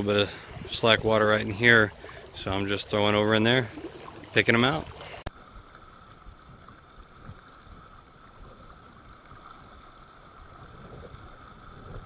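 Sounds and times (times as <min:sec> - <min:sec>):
river current rushing: 0:00.0 - 0:06.2.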